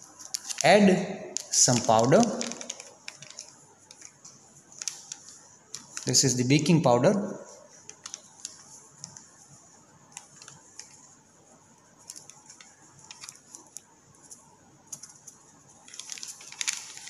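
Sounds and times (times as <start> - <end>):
plastic packet rustling and clicking: 0.0 - 0.7, 1.3 - 6.2, 7.8 - 9.3, 12.0 - 17.0.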